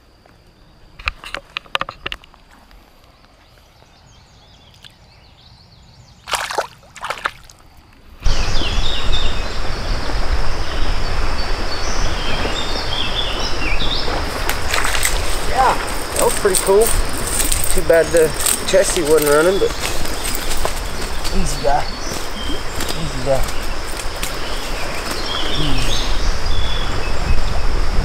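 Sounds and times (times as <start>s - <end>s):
birds chirping: 2.8s - 7.2s, 7.8s - 27.9s
wind on microphone: 8.2s - 28.0s.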